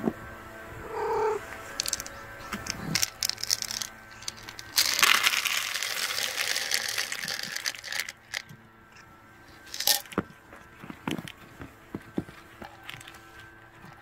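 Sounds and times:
pellets clicking: 1.8s - 8.5s, 9.6s - 11.6s
dry kibble pouring into plastic tray: 3.0s - 8.4s, 9.7s - 10.1s.

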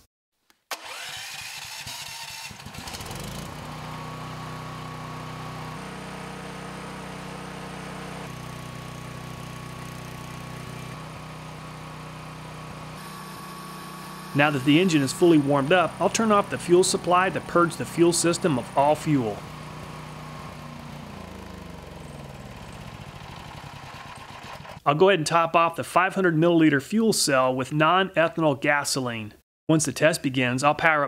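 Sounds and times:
generator engine running: 0.7s - 24.8s.

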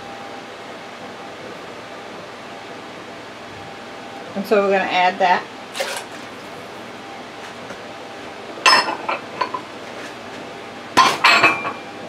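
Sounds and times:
dishes clinking and clattering: 8.7s - 9.7s, 11.0s - 11.9s.

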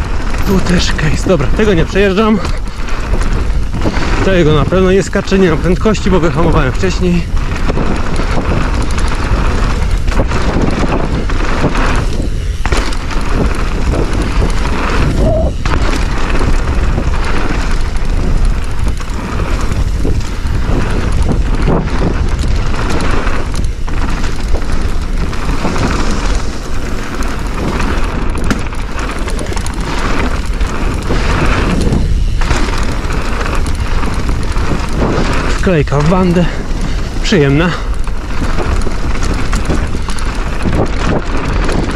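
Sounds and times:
bike tyres rolling on dirt: 0.0s - 41.9s
wind buffeting microphone: 0.0s - 41.9s
bike knocking over bumps: 7.3s - 41.9s.

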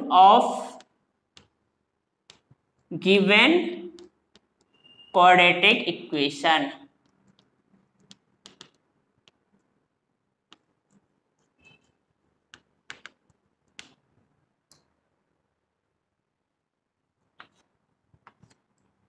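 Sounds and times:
faint clicks and taps: 0.8s - 2.9s, 3.9s - 4.8s, 6.9s - 9.8s, 10.4s - 15.0s, 17.2s - 19.0s.

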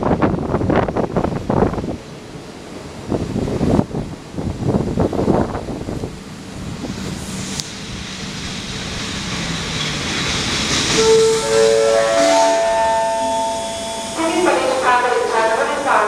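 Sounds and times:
train rumble: 0.0s - 16.0s
train hiss: 6.3s - 16.0s
train brake squeal: 9.4s - 14.2s.

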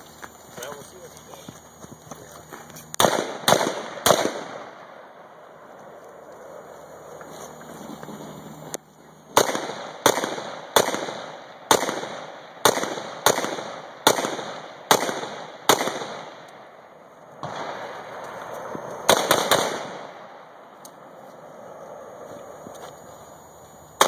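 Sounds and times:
rifle shots: 3.0s - 5.2s, 9.3s - 16.7s, 17.4s - 20.5s.

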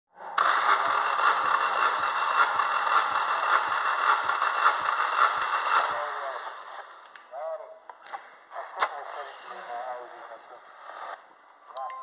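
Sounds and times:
engine cranking on starter motor: 0.4s - 7.0s.

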